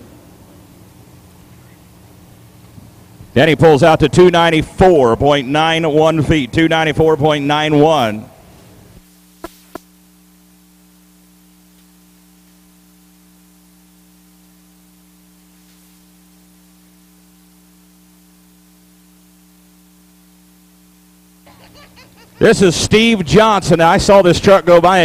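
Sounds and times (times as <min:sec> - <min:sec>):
electrical mains hum: 0:00.0 - 0:25.0
faint hiss: 0:08.5 - 0:10.0, 0:11.2 - 0:19.9.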